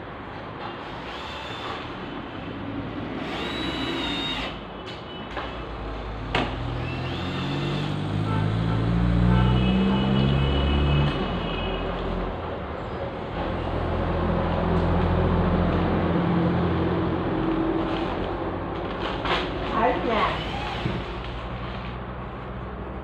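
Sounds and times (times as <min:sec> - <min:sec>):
cordless drill whirring: 0:00.8 - 0:02.1, 0:03.2 - 0:04.6, 0:06.6 - 0:08.0, 0:20.2 - 0:21.4.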